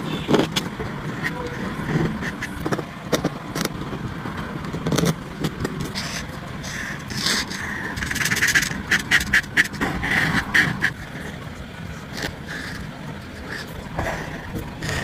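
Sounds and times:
marker scratching on paper: 0:05.8 - 0:11.4.

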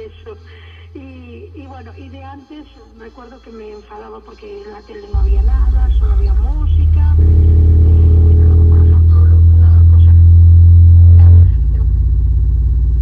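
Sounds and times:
low bass drone: 0:05.1 - 0:13.0.

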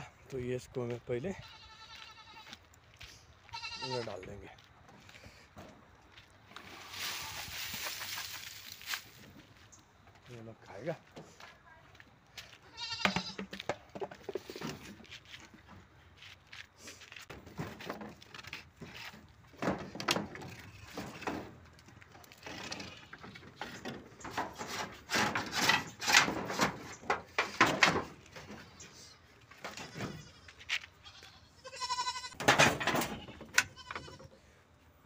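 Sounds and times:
wooden poles knocking and scraping: 0:12.8 - 0:15.9, 0:17.1 - 0:28.8, 0:29.5 - 0:30.8, 0:32.3 - 0:34.3.

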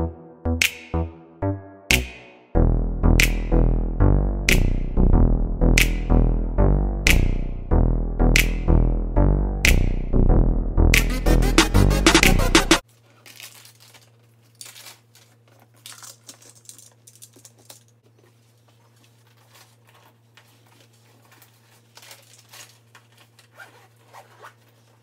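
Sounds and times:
clothes and bags rustling: 0:18.1 - 0:25.0.

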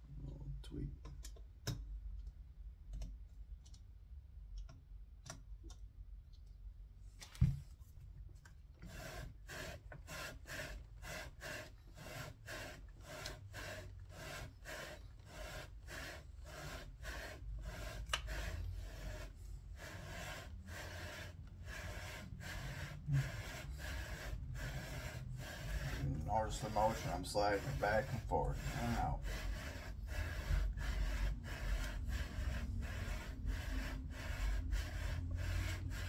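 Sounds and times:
rhythmic metal scraping rub: 0:08.8 - 0:36.0.

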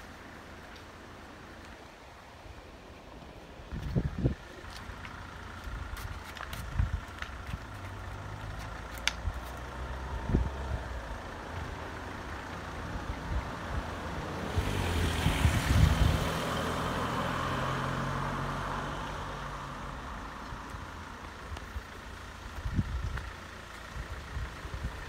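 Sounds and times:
vehicle passing: 0:07.6 - 0:20.9.

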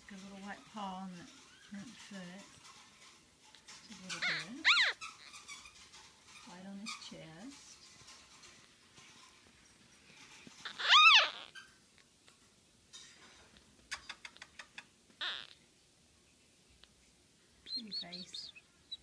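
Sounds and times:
puppy squealing: 0:04.0 - 0:06.0, 0:10.6 - 0:11.8, 0:15.2 - 0:15.6.

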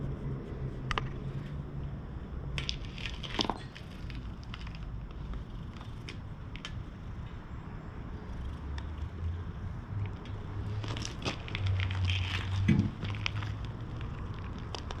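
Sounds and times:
small clicks and crackles: 0:02.6 - 0:06.8, 0:10.0 - 0:15.0.

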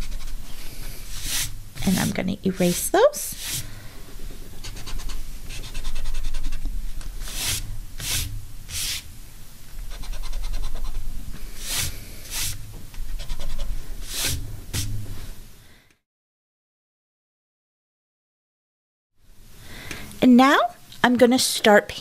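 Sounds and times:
eraser rubbing on paper: 0:00.0 - 0:06.6, 0:07.2 - 0:09.1, 0:09.9 - 0:11.0, 0:11.6 - 0:14.9.

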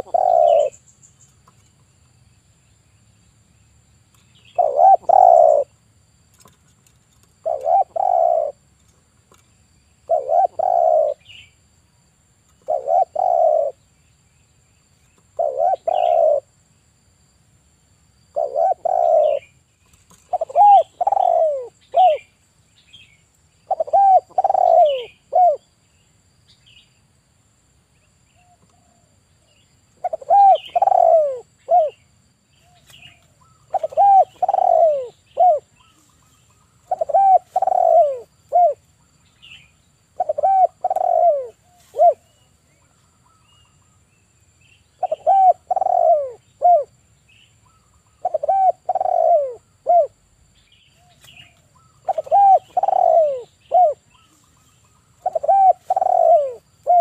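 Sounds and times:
dove cooing: 0:00.0 - 0:00.8, 0:04.5 - 0:05.8, 0:07.4 - 0:08.7, 0:10.0 - 0:11.5, 0:12.6 - 0:13.8, 0:15.3 - 0:16.5, 0:18.3 - 0:19.5, 0:20.1 - 0:22.3, 0:23.6 - 0:25.7, 0:30.0 - 0:32.0, 0:32.6 - 0:38.9, 0:40.1 - 0:42.4, 0:45.0 - 0:46.9, 0:47.7 - 0:50.2, 0:51.0 - 0:57.0
small birds chirping: 0:00.0 - 0:11.7, 0:12.4 - 0:16.5, 0:18.3 - 0:27.2, 0:27.8 - 0:57.0.

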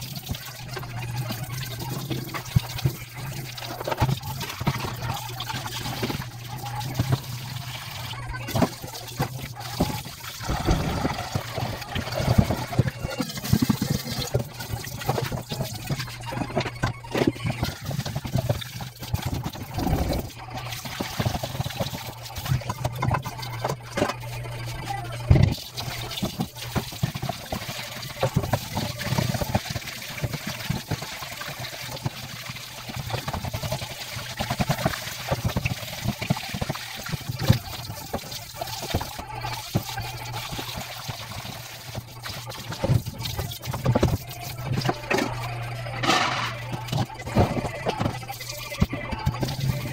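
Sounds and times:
tap water splashing into sink: 0:00.0 - 0:24.3, 0:25.0 - 0:49.9
metal bowl clanking: 0:42.7 - 0:49.9.

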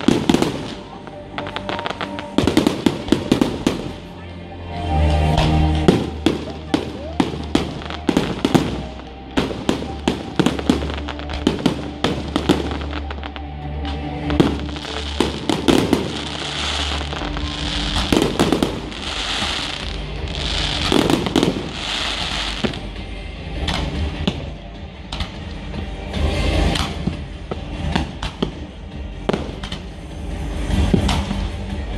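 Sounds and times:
fireworks bangs: 0:00.0 - 0:04.1, 0:05.4 - 0:13.4, 0:14.2 - 0:23.0
music: 0:00.0 - 0:31.9
crackling hissing firework bursts: 0:14.4 - 0:22.9.

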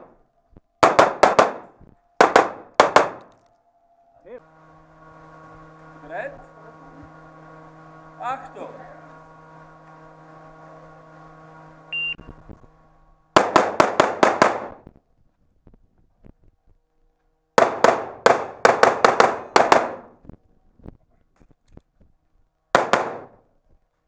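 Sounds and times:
pistol shots echoing: 0:00.8 - 0:03.3, 0:13.4 - 0:14.8, 0:22.8 - 0:23.4
shot timer beep: 0:11.9 - 0:12.4.

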